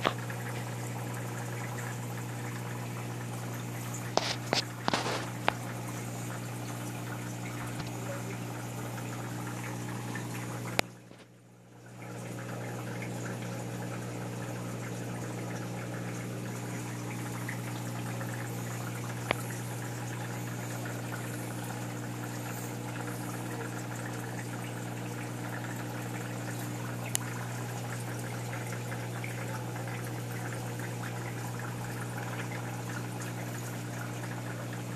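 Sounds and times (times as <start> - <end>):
aquarium pump humming: 0.0 - 34.9
water rushing and trickling: 0.0 - 34.9
faint ticks: 27.1 - 27.3.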